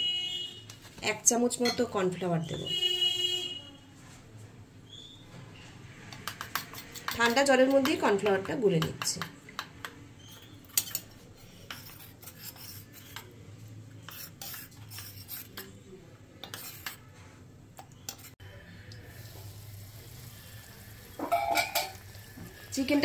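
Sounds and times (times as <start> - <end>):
spoon clinking against bowl: 21.2 - 22.0.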